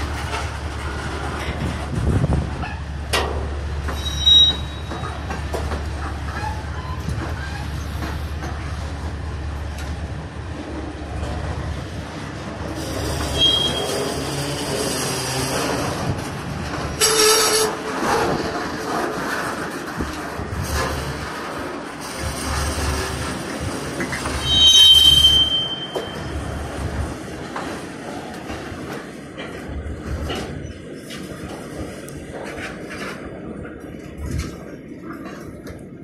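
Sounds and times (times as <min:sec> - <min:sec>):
train wheels rolling on rails: 0:00.0 - 0:36.0
high-pitched wheel squeals: 0:03.9 - 0:05.1, 0:12.8 - 0:15.2, 0:24.3 - 0:26.4.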